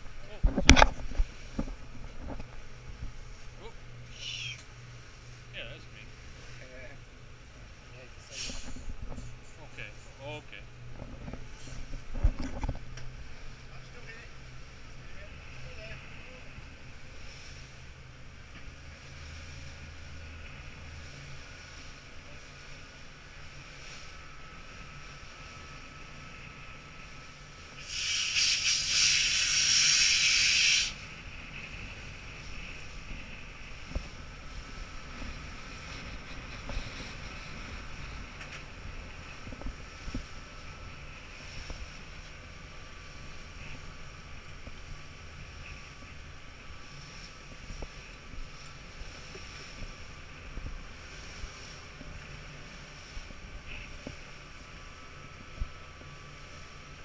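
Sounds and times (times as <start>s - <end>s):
wind and water rushing past hull: 0.0s - 57.0s
loud hiss: 8.3s - 8.7s, 27.8s - 31.0s.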